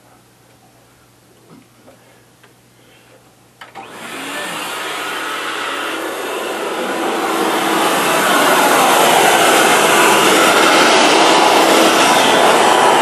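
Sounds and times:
vacuum cleaner switch clicks: 3.6 - 4.0
vacuum cleaner running: 3.6 - 13.0.

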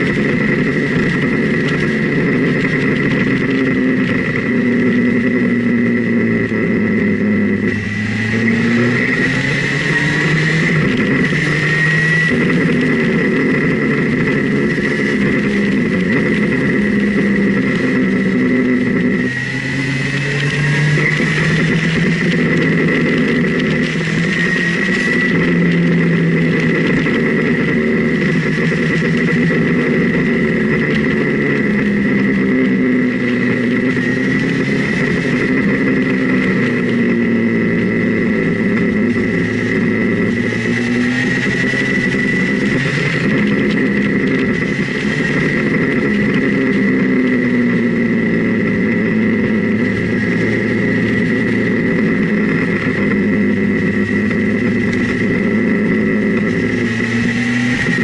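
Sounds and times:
motorcycle engine revving: 0.0 - 58.0
steady high whine: 0.0 - 58.0.

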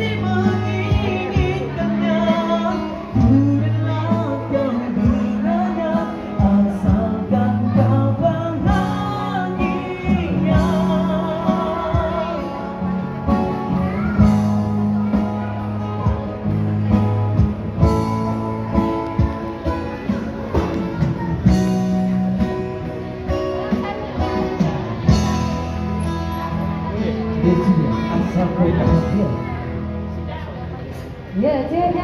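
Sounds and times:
person singing with vibrato: 0.0 - 12.9
held bass notes: 0.0 - 31.3
electric guitar: 0.0 - 32.0.

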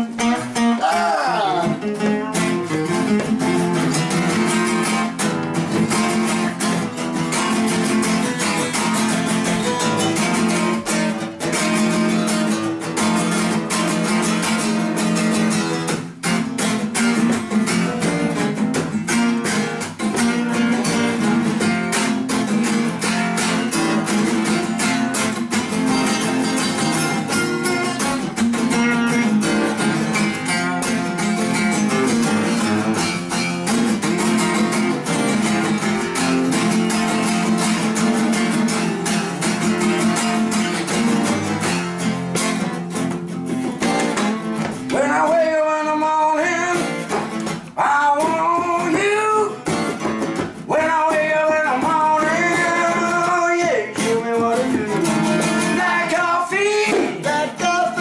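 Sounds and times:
acoustic guitars strumming: 0.0 - 58.0
man singing: 0.2 - 3.2, 44.9 - 49.9, 50.6 - 58.0.

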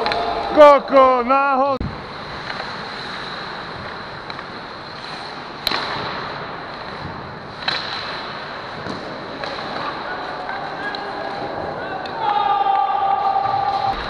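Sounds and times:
puck and stick cracks: 0.0 - 1.0, 2.3 - 12.4
indoor rink hiss: 0.0 - 14.0.

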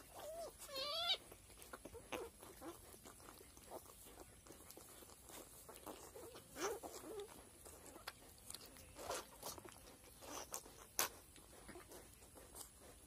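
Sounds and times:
piglet squealing: 0.1 - 1.3.

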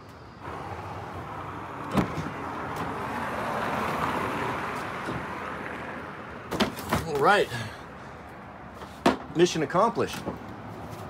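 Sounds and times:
car passing: 0.3 - 8.8.

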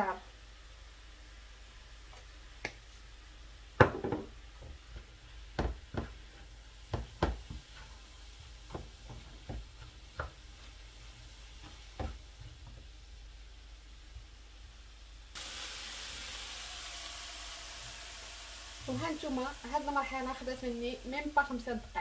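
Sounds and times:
faint sizzle: 0.0 - 22.0
spatula knocking and scraping pan: 3.8 - 12.9.

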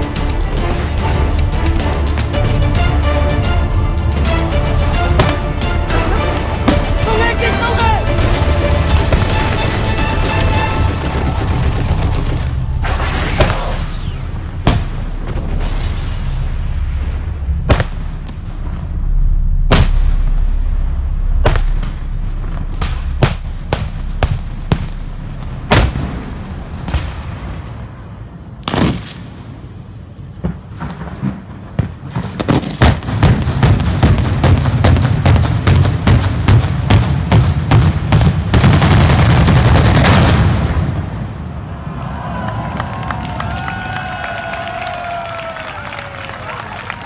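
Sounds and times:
low rumble: 0.0 - 31.7
crackling firework bangs: 8.1 - 18.9, 19.6 - 20.8, 21.4 - 29.7, 30.3 - 41.6.

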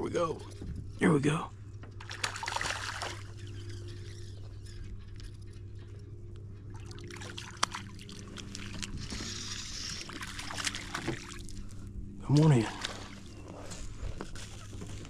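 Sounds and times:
steady low hum: 0.0 - 15.0
fish splashing at water surface: 2.0 - 3.3, 6.8 - 11.5.

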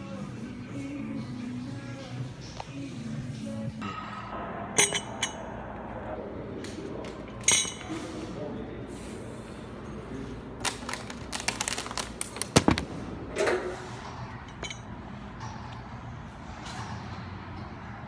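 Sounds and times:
steady low hum: 0.0 - 18.0
metal gym equipment clanking: 3.9 - 5.5.

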